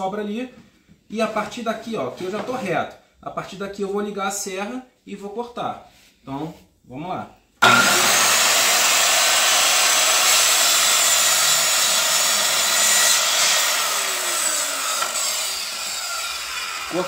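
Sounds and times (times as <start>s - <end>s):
circular saw cutting board: 7.6s - 17.0s.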